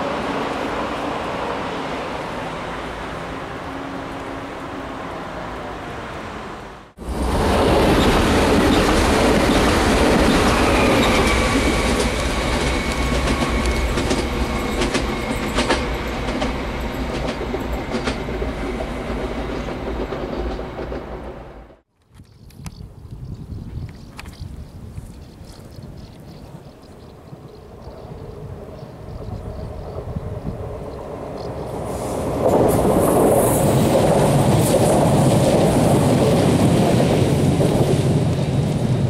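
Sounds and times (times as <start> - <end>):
train passing on rails: 0.0 - 21.9, 25.8 - 39.0
distant traffic hum: 0.0 - 23.2, 23.8 - 39.0
wheels clicking over track: 7.9 - 21.3.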